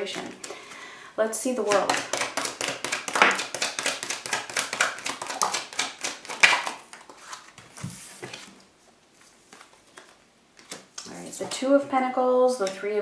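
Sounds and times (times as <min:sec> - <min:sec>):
cards being shuffled: 0:01.7 - 0:08.6, 0:09.2 - 0:11.2.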